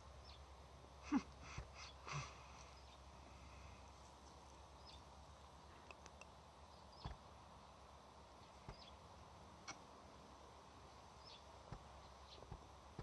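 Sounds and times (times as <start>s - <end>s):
faint bird chirps: 8.4s - 9.0s.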